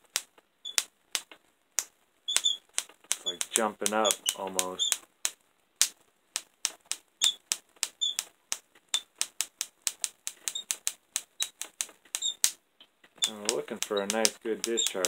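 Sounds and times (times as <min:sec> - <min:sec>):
electrical sparks snapping: 0:00.0 - 0:15.0.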